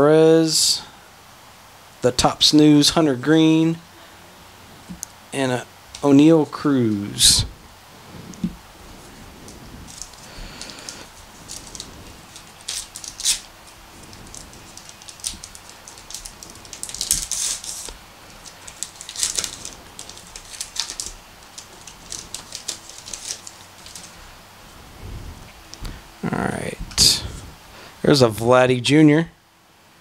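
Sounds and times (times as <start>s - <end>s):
cards sliding out: 9.5s - 24.2s
wrapper tearing and crinkling: 9.9s - 24.2s.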